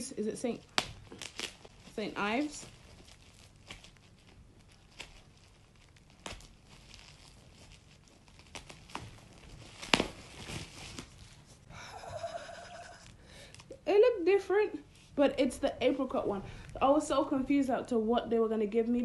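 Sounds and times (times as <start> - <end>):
packaging crinkling and tearing: 0.5 - 11.6.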